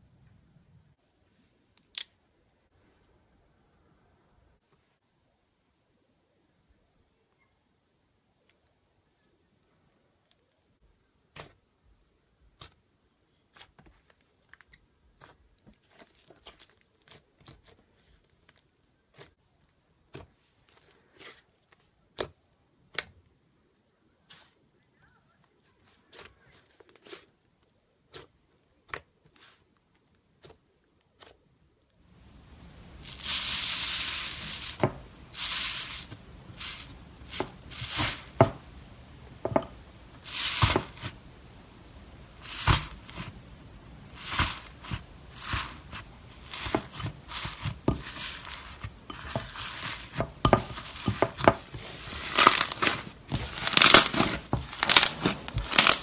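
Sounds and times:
crunching crinkling slime crust: 13.5s - 19.8s, 42.4s - 56.0s.

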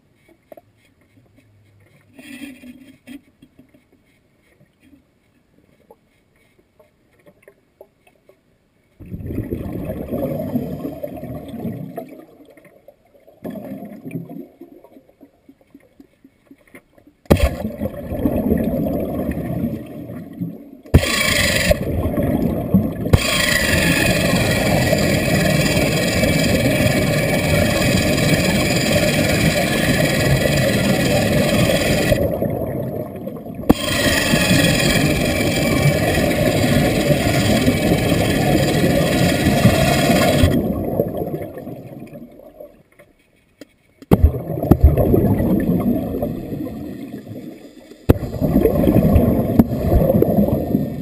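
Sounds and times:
air bubbling: 9.0s - 12.2s, 17.3s - 20.3s, 20.9s - 42.3s, 44.1s - 47.5s, 48.1s - 51.0s
air drill running underwater: 17.3s - 19.9s, 20.9s - 42.0s, 44.1s - 51.0s
short bursts of noise: 20.9s - 22.5s, 23.1s - 32.3s, 33.7s - 41.0s.

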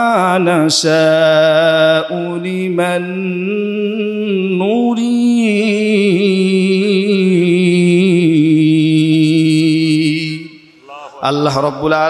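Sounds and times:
man chanting melodic recitation: 0.0s - 12.0s.

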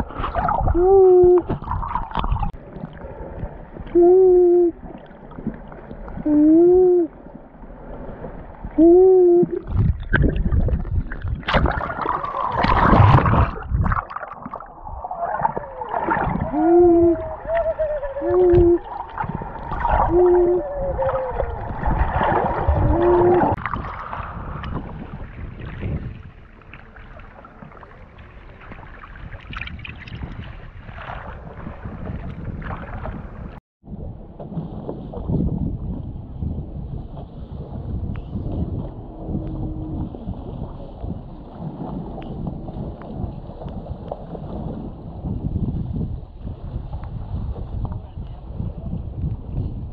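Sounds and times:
water splashing and gurgling: 0.0s - 48.0s
person hooting underwater: 0.3s - 2.5s, 3.9s - 5.0s, 6.2s - 7.2s, 8.8s - 10.4s, 14.9s - 23.6s, 38.4s - 40.4s.

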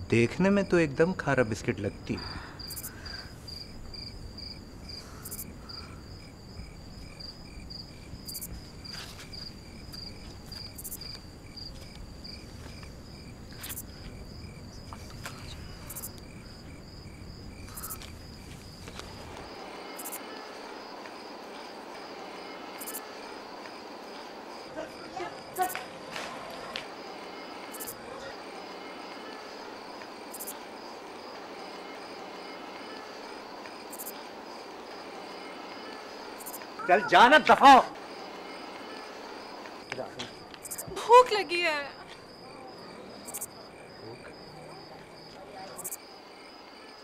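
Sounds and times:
crickets chirping: 0.0s - 47.0s
low night background hum: 0.0s - 47.0s.

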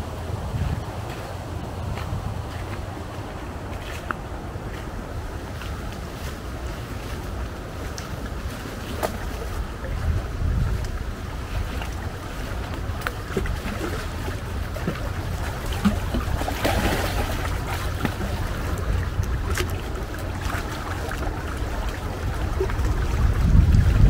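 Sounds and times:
wind buffeting microphone: 0.0s - 24.0s
footsteps on forest path: 1.0s - 9.3s.

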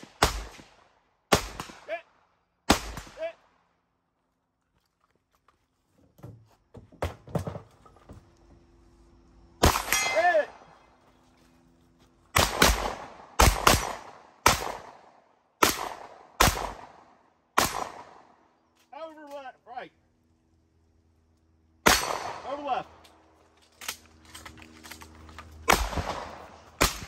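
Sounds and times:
gunshots: 0.0s - 2.1s, 2.7s - 3.4s, 9.6s - 10.7s, 12.4s - 18.3s, 21.8s - 22.8s, 25.6s - 27.0s
steel target ringing: 9.7s - 10.4s.

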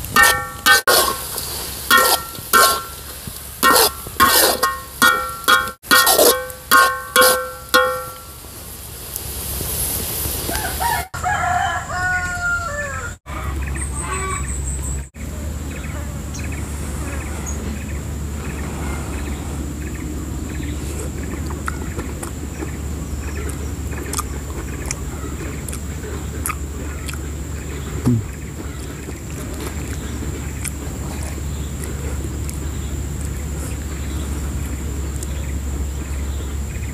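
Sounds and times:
rooster crowing: 10.5s - 14.4s.

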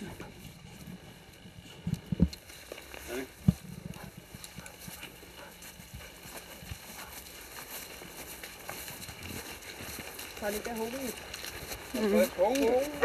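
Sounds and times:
footsteps on grass: 0.0s - 13.0s
dog panting: 3.9s - 7.9s.

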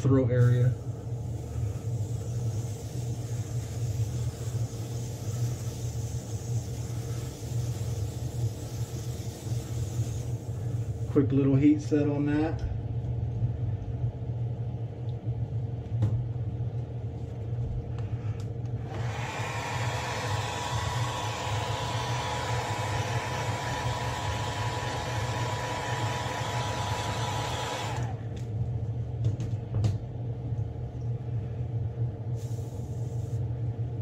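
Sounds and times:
steady low hum: 0.0s - 34.0s
hair dryer blowing: 18.8s - 28.4s.

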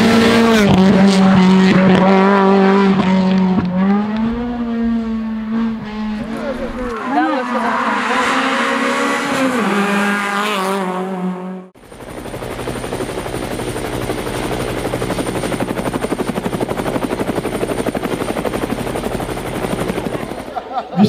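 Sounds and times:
pulsing rotor whirr with whine: 0.0s - 10.5s
car engine at high revs: 0.0s - 11.8s.

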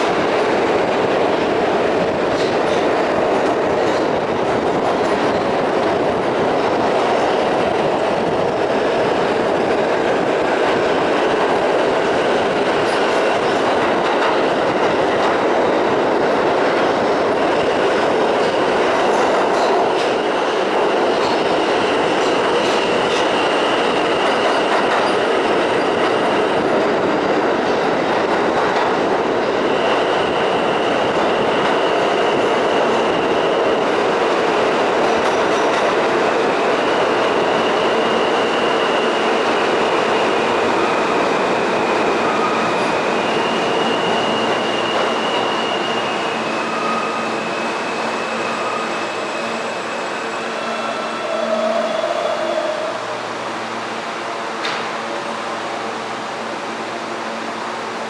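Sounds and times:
subway train rumbling in tunnel: 0.0s - 58.0s.

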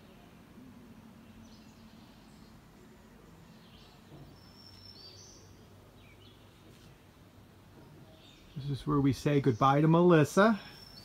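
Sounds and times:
faint low hum: 0.0s - 11.0s
birds chirping and whistling: 3.5s - 6.4s, 10.6s - 11.0s.

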